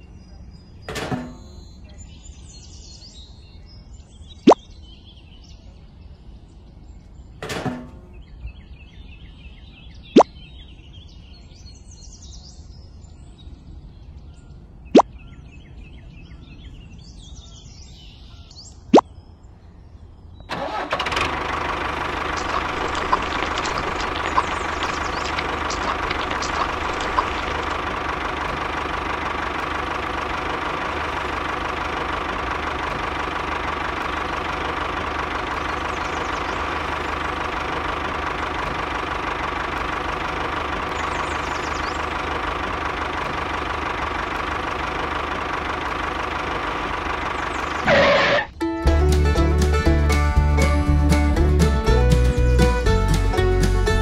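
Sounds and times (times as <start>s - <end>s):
toy tractor motor humming: 20.5s - 48.5s.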